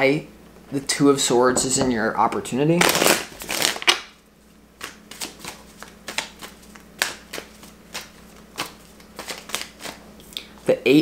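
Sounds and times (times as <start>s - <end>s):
cards being shuffled: 4.8s - 10.0s.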